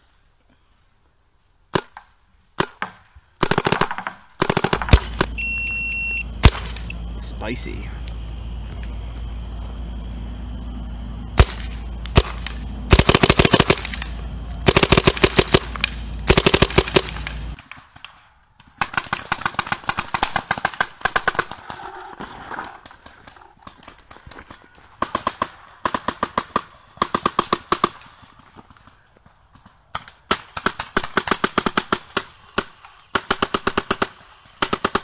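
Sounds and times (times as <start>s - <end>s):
paintball marker firing: 1.7s - 5.4s, 6.4s - 7.0s, 11.4s - 21.5s.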